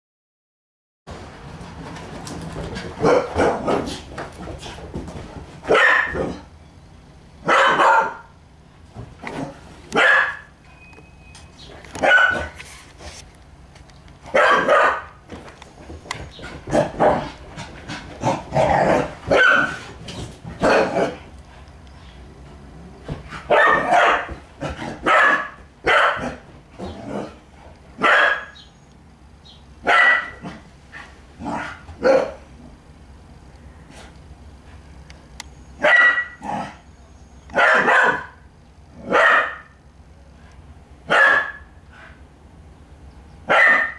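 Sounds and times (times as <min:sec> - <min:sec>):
puppy barking: 0:03.0 - 0:03.9, 0:05.7 - 0:06.4, 0:07.4 - 0:08.3, 0:10.0 - 0:10.5, 0:12.0 - 0:12.6, 0:14.3 - 0:15.2, 0:18.8 - 0:19.8, 0:20.6 - 0:21.2, 0:23.5 - 0:24.4, 0:25.0 - 0:26.4, 0:28.0 - 0:28.7, 0:29.8 - 0:30.6, 0:31.5 - 0:32.4, 0:35.8 - 0:36.8, 0:37.5 - 0:38.4, 0:39.0 - 0:39.8, 0:41.1 - 0:41.7, 0:43.5 - 0:43.9.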